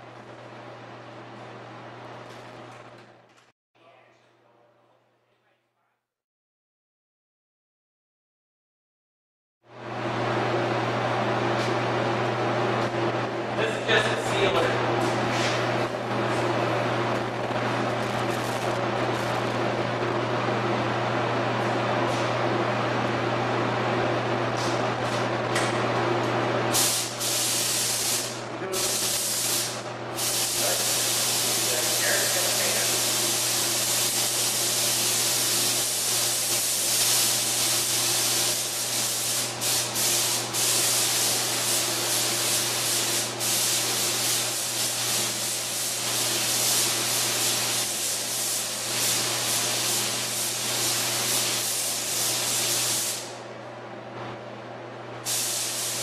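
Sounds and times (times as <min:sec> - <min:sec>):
spray gun hissing: 0:26.7 - 0:53.3, 0:55.2 - 0:56.0.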